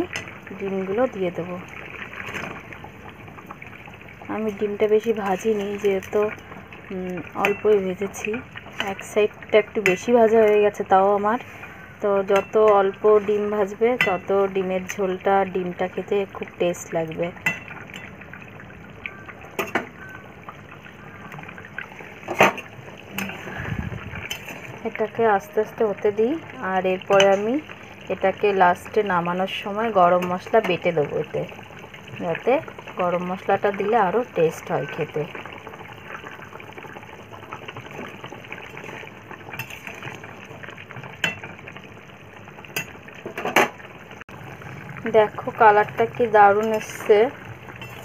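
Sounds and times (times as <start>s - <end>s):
curry simmering and bubbling: 0.0s - 48.0s
metal spoon clinking on pan: 14.0s - 14.3s, 17.4s - 18.1s, 27.1s - 27.5s, 47.8s - 48.0s.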